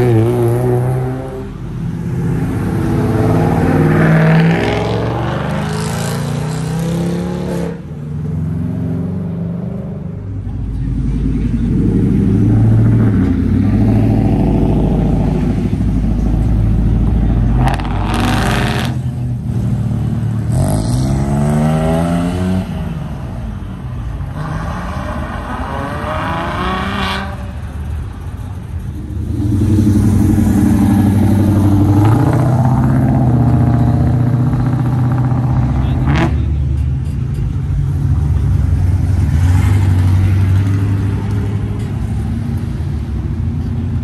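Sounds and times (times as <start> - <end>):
cars revving and accelerating: 0.0 - 44.0
car engines idling: 10.2 - 20.5, 27.5 - 44.0.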